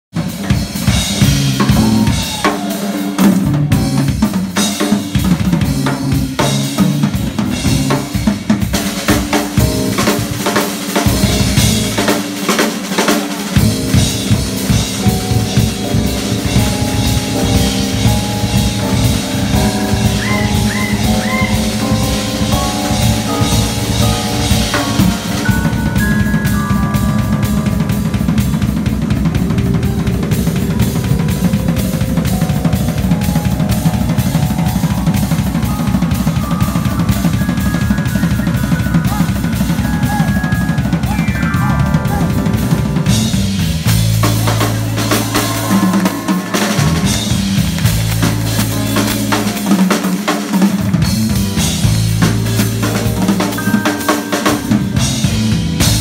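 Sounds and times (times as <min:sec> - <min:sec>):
drum kit played busily: 0:00.0 - 0:56.0
held keyboard notes: 0:00.4 - 0:56.0
electric bass guitar: 0:41.6 - 0:49.9, 0:50.8 - 0:53.8, 0:54.7 - 0:56.0.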